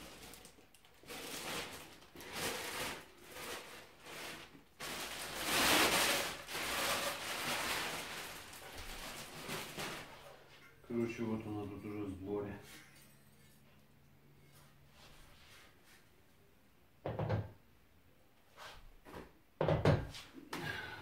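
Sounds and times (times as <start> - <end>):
packaging rustling: 0.0 - 10.5.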